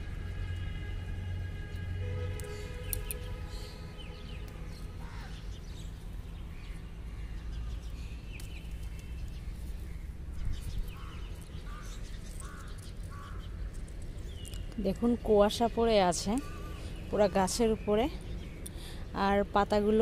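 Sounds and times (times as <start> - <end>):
birds chirping: 2.0 - 20.0
crows cawing: 5.0 - 5.4, 10.9 - 13.5, 16.4 - 16.9.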